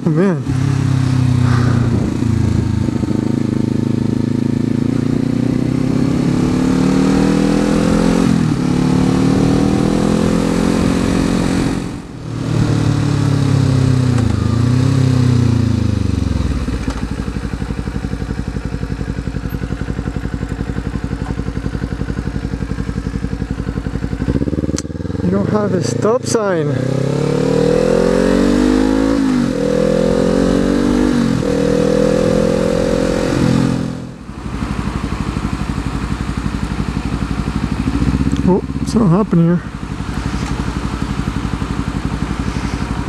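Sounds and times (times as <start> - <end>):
motorcycle engine revving: 0.0 - 43.0
motorcycle engine idling: 0.6 - 5.7, 8.0 - 27.0, 34.0 - 43.0.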